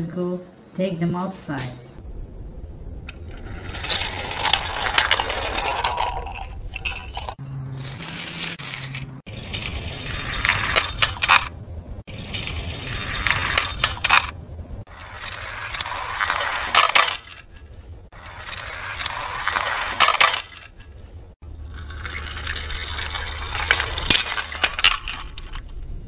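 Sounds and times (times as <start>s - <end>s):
toy cars rattling down plastic track: 3.3s - 11.5s, 12.1s - 20.9s, 21.7s - 25.7s
toy cars clinking into pile: 3.6s - 7.4s, 8.1s - 11.5s, 12.1s - 14.3s, 15.0s - 17.5s, 18.2s - 20.8s, 21.8s - 25.6s.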